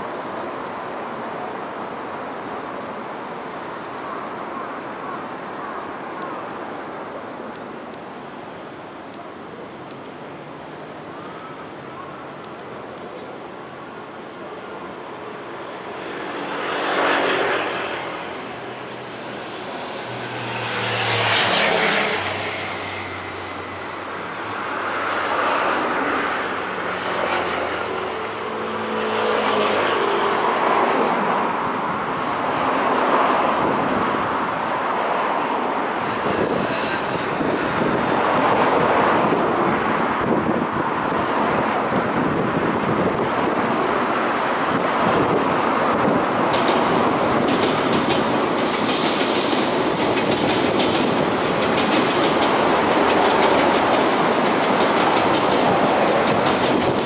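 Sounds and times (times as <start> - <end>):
traffic noise: 0.0 - 57.0
vehicles passing: 0.0 - 57.0.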